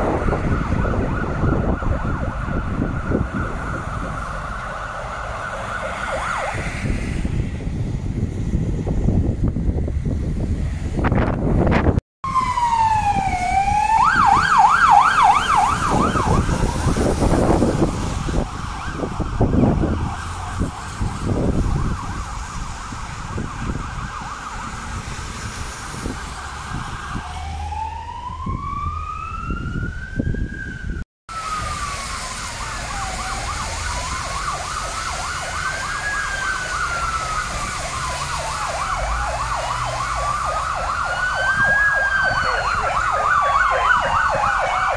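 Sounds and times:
fire engine sirens: 0.0 - 44.9
low gusting noise: 0.0 - 44.9.

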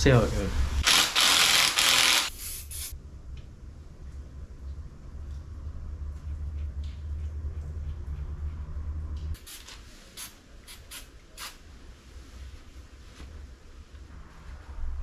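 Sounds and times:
steady low hum: 2.3 - 9.4.

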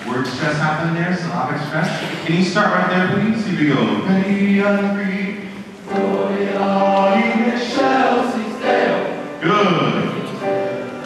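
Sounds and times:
male choir singing: 3.3 - 10.7.

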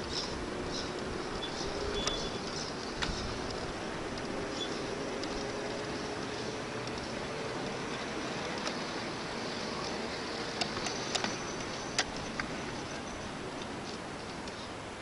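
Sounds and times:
sharp clicks and ticks: 0.0 - 7.8
model tram rolling on track: 0.0 - 15.0.

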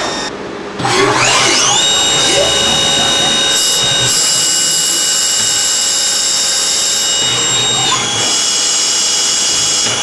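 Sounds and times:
lathe high-pitched whine: 0.0 - 10.0.

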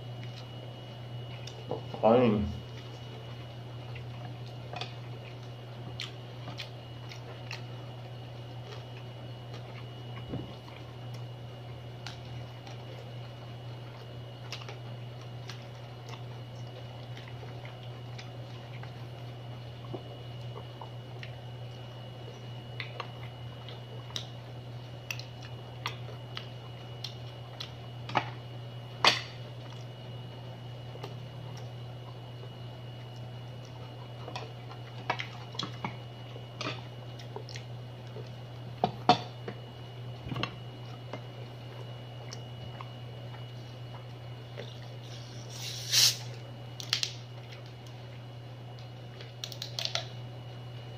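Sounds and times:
steady low hum: 0.0 - 50.9
sucking and chewing: 2.6 - 11.3, 33.0 - 38.4, 49.1 - 50.2
crab shell cracking: 46.8 - 47.2, 49.2 - 50.2.

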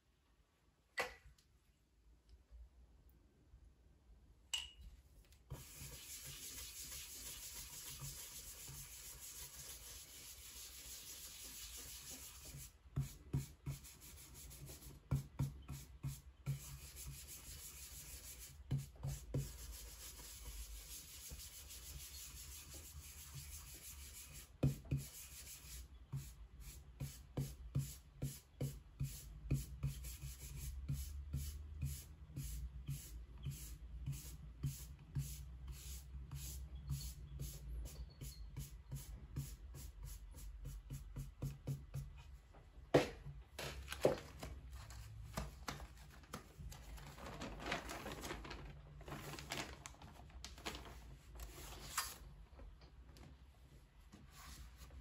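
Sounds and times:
brush rubbing on woodblock: 5.6 - 12.7.

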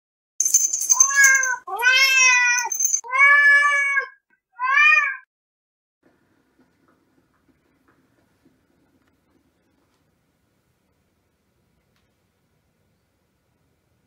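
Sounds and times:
cat meowing: 1.0 - 5.3.

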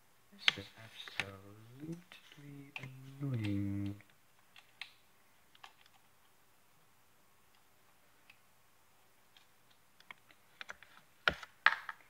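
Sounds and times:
faint clicks of small parts: 0.4 - 6.4, 9.3 - 12.0.

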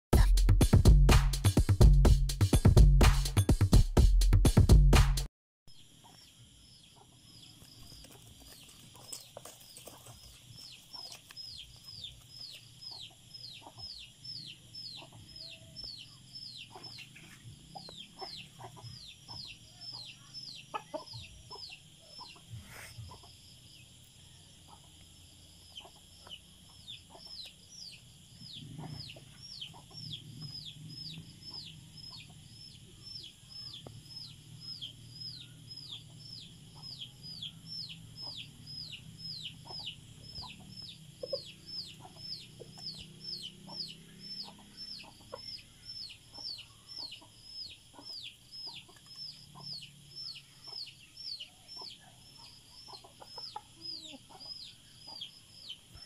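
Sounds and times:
junglefowl clucking: 17.8 - 23.4, 39.6 - 43.0, 51.8 - 55.3.

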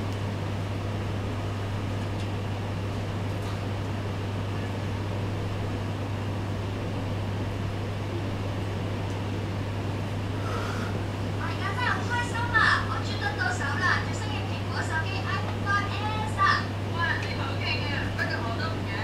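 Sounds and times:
ventilation rushing: 0.0 - 19.0.

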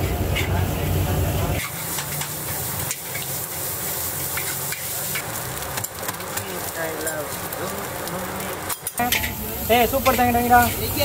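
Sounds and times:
rice sizzling in a wok: 0.0 - 11.0
spatula scraping a wok: 1.5 - 10.9.

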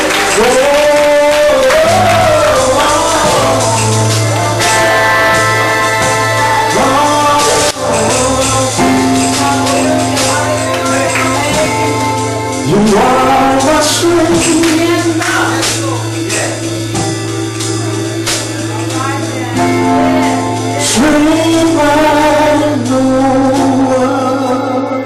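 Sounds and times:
women singing: 0.0 - 15.6
man singing into microphone: 0.0 - 17.3, 18.7 - 25.0
percussion hits: 0.0 - 24.5.

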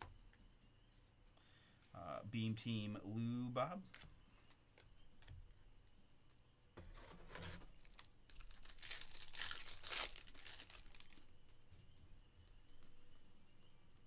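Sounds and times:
foil wrapper tearing and crinkling: 7.8 - 11.3.

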